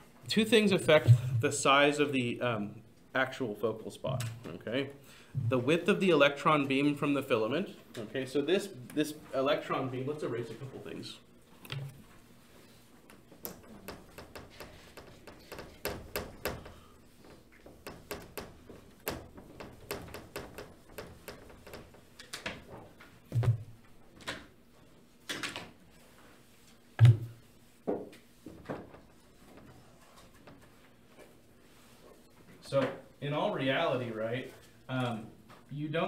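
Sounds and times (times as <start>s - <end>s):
dull knocks: 13.7s - 16.9s.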